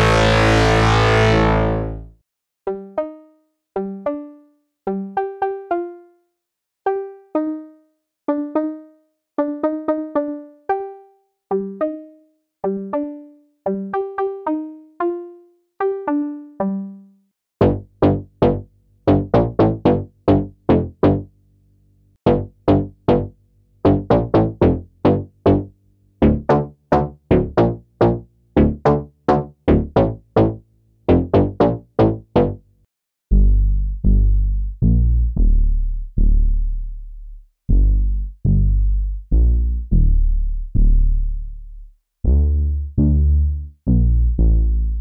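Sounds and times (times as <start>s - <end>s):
rhythmic run of sharp synth notes: 0.0s - 2.0s, 17.6s - 21.2s, 26.2s - 32.6s
synthesizer plucked notes: 0.0s - 2.1s, 2.7s - 6.1s, 6.9s - 21.3s, 22.3s - 23.3s, 23.9s - 32.6s, 42.3s - 45.0s.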